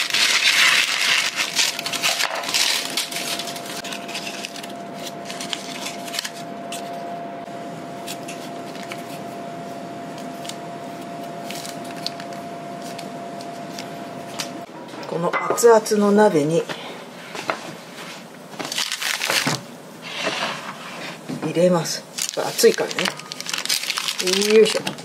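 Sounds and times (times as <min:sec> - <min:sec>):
scissors snipping paper: 0:00.0 - 0:06.9
faint steady hum: 0:00.0 - 0:25.0.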